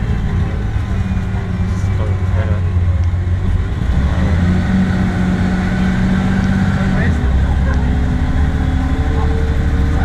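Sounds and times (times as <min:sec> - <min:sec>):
bus engine drone from inside: 0:00.0 - 0:10.0.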